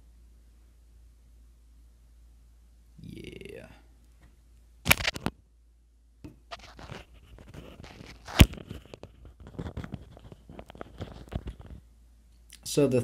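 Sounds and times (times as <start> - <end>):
rustling and scraping of materials: 6.4 - 11.9.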